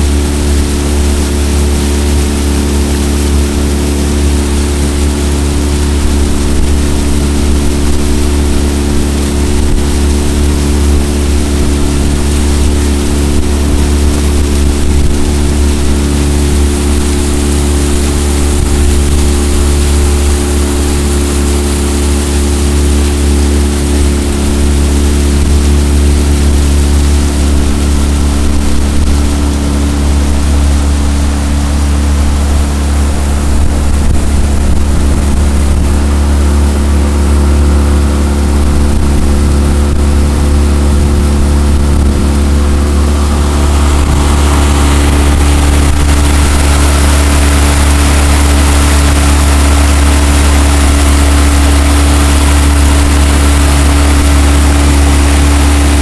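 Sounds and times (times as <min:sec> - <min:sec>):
outboard motor running: 0:00.0 - 0:56.0
wind and water hiss: 0:00.0 - 0:56.0.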